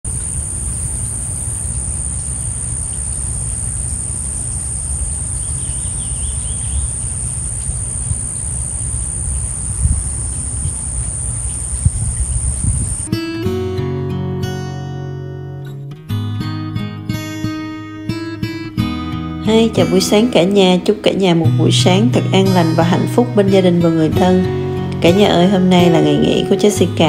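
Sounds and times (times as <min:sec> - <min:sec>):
insects droning: 0:00.0 - 0:13.2, 0:17.2 - 0:27.0
warbling bird call: 0:00.1 - 0:13.1.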